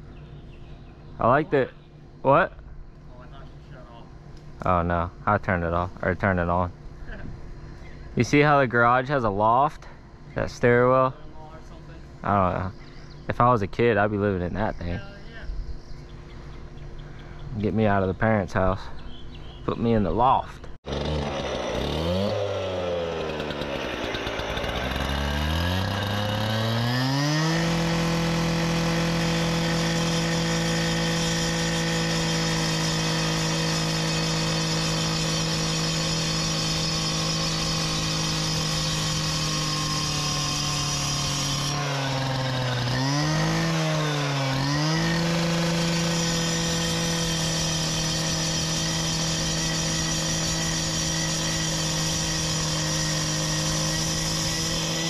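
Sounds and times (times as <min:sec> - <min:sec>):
cut-off saw cutting stone: 0:20.9 - 0:55.0.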